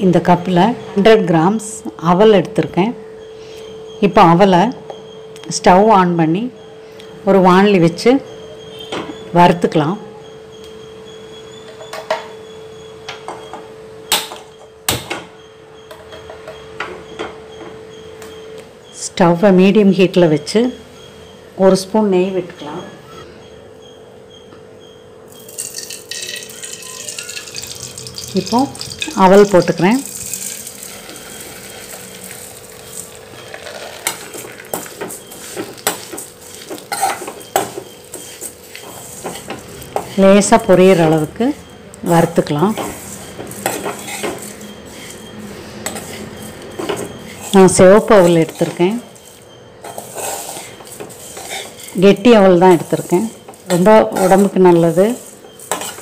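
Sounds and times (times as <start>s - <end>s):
metal spoon scraping a pan: 25.3s - 56.0s.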